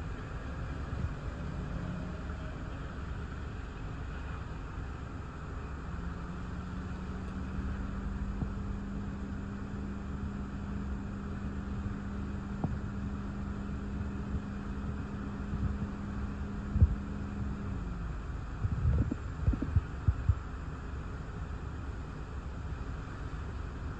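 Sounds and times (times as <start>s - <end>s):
steady low hum: 0.0s - 23.9s
gusty wind rumble: 18.4s - 20.5s.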